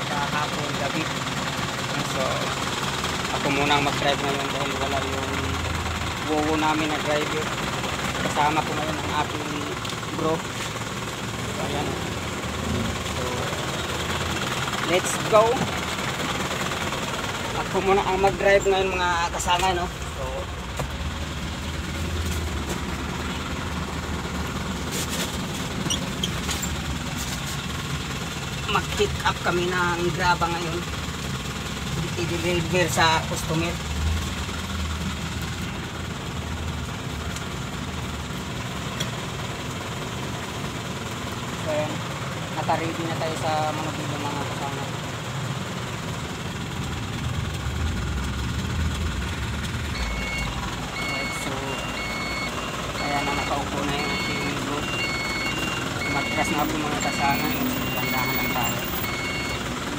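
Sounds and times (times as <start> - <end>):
truck engine idling: 0.0 - 59.9
reversing alarm beeping: 49.9 - 59.8.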